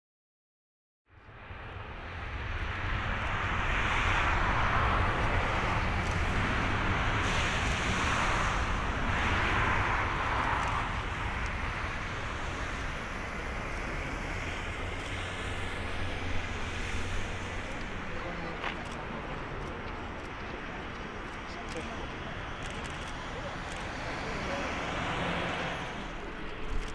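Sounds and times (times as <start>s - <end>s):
wind rumble on microphone: 1.2s - 26.9s
jet engines hissing: 1.8s - 26.9s.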